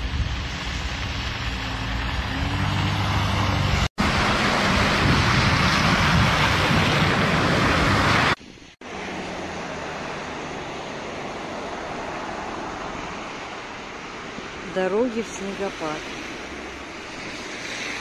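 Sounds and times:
tyre and wind rush: 0.0s - 14.8s
vehicle engines running: 0.0s - 18.0s.

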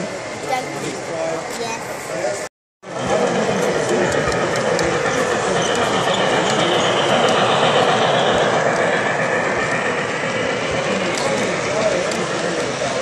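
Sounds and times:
model train wheels clattering: 3.0s - 13.0s.

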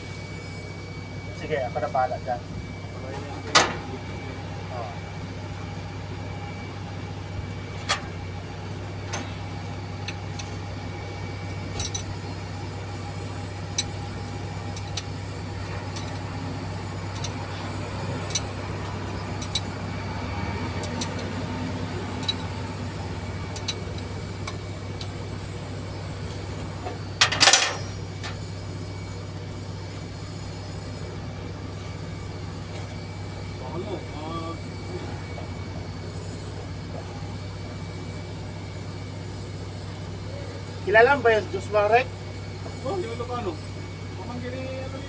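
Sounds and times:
low machine drone: 0.0s - 45.0s
metal tools clinking: 27.2s - 28.4s.

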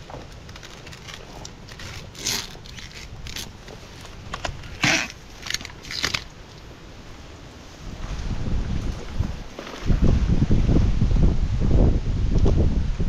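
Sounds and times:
twigs snapping: 0.0s - 6.7s.

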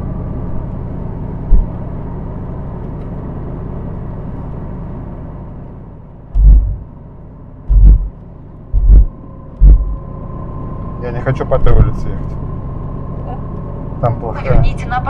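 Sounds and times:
road and tyre rumble: 0.0s - 15.0s
low thuds: 1.5s - 1.8s, 6.4s - 6.9s, 7.7s - 10.1s.

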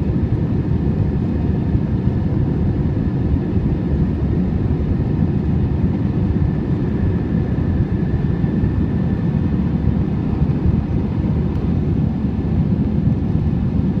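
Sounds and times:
aircraft engine and airflow rumble: 0.0s - 14.0s.

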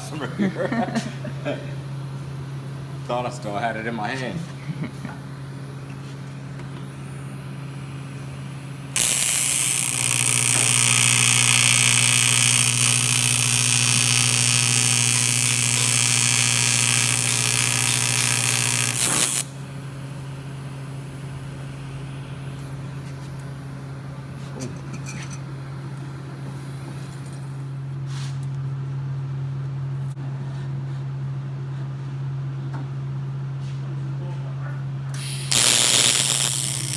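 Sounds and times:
steady low hum: 0.0s - 36.9s
welding arc hissing: 7.0s - 19.6s, 35.2s - 36.9s.

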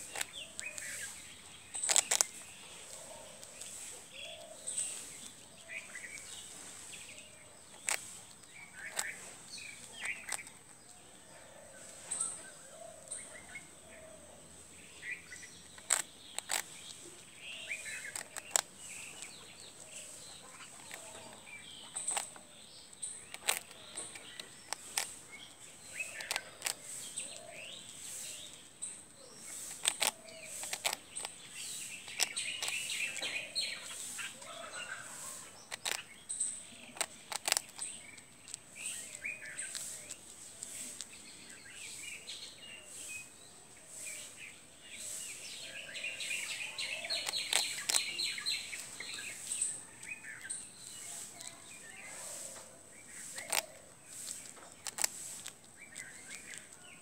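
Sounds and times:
birds chirping: 0.0s - 57.0s
animal crunching toast: 1.8s - 3.7s, 7.7s - 10.9s, 15.8s - 22.5s, 23.2s - 27.4s, 29.5s - 31.4s, 32.1s - 36.1s, 36.8s - 41.2s, 46.5s - 52.7s, 53.3s - 57.0s.

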